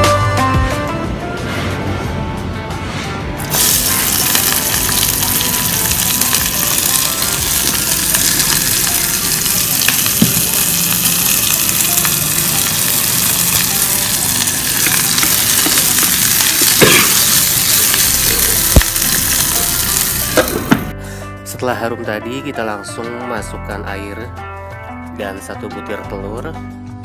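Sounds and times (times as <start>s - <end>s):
food sizzling in hot oil: 3.4s - 20.9s.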